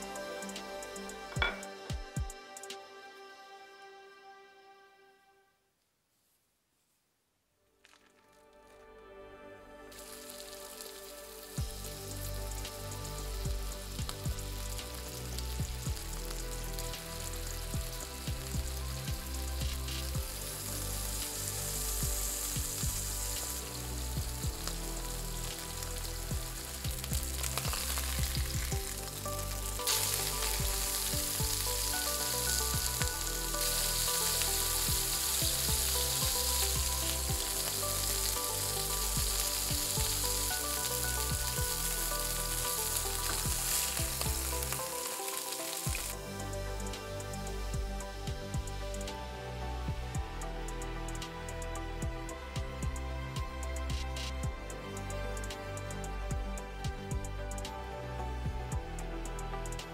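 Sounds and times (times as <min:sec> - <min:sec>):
burger patty sizzling in oil: 0:09.9 - 0:46.4.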